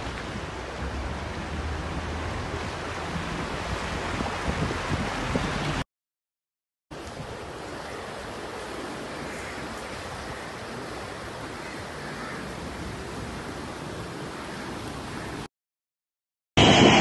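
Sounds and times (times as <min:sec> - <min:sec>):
floodwater rushing: 0:00.0 - 0:05.8, 0:06.9 - 0:15.5
wind: 0:00.0 - 0:05.8, 0:06.9 - 0:15.5, 0:16.6 - 0:17.0
low rumble: 0:16.6 - 0:17.0.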